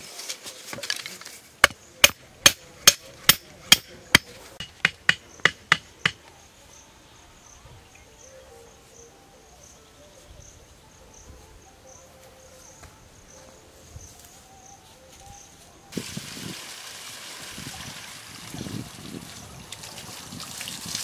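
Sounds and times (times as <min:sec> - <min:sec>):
crickets chirring: 0:01.3 - 0:16.0
wood chopping strikes: 0:01.6 - 0:06.2.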